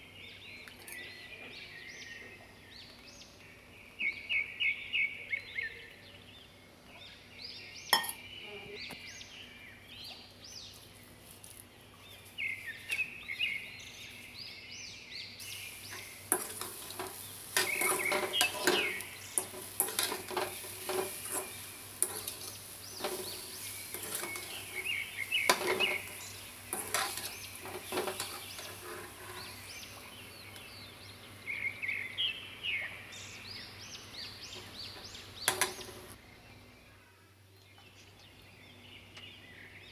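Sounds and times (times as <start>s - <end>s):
birds chirping: 0.0s - 39.9s
steady hiss: 9.0s - 36.3s
metal spatula scraping pan: 15.8s - 30.0s.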